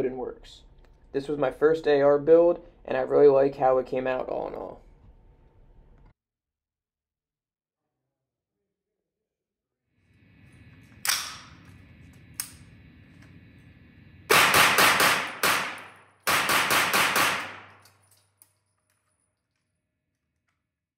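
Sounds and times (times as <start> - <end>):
rapid gunshots echoing indoors: 14.3 - 17.9.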